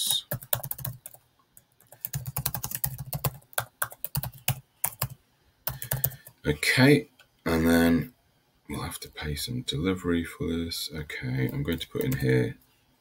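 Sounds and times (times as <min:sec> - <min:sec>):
typing on computer keyboard: 0:00.3 - 0:01.2, 0:01.8 - 0:06.4.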